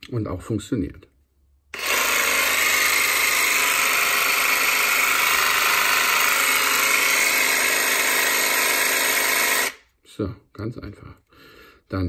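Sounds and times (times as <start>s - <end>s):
jigsaw running with no load: 1.8s - 9.8s.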